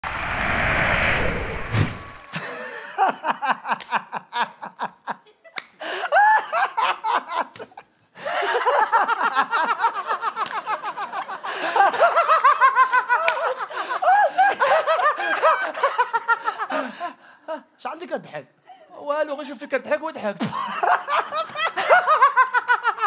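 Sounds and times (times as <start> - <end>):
wash of noise: 0.0 - 2.4.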